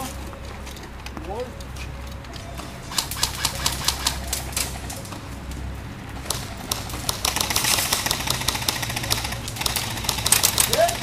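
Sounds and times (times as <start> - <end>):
airsoft guns firing: 2.9 - 4.2, 6.2 - 11.0.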